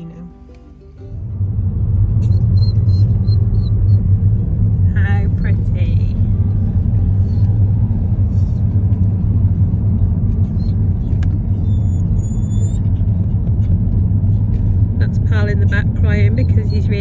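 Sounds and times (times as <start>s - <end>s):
car road noise: 0.0s - 17.0s
dog whining: 2.2s - 4.2s, 10.4s - 13.3s.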